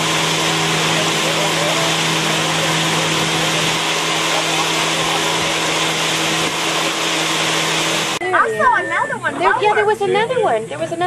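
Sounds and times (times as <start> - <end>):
rush of noise: 0.0 - 8.2
boat motor humming: 0.0 - 11.0.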